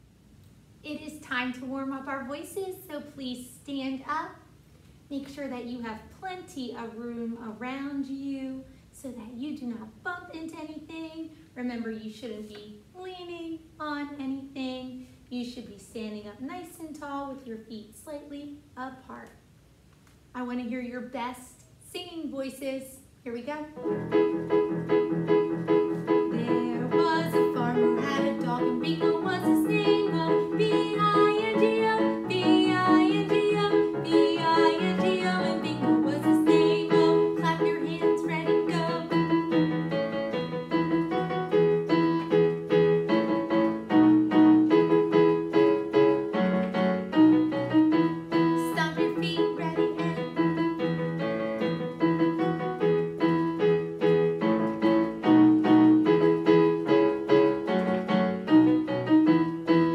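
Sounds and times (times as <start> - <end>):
digital piano playing chords: 23.8 - 59.9.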